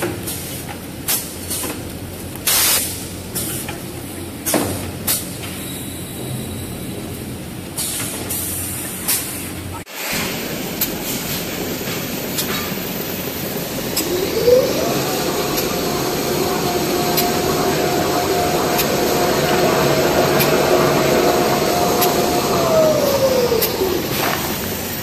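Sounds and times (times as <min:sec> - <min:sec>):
paper machine whirring: 0:13.3 - 0:25.0
motor tone rising in pitch: 0:13.4 - 0:24.7.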